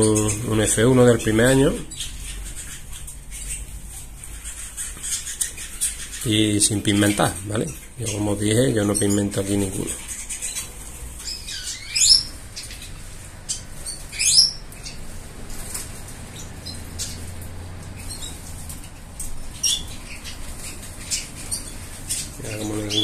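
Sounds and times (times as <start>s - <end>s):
finches chirping: 0.0s - 23.0s
high bird calls: 0.0s - 23.0s
wings fluttering: 9.7s - 23.0s.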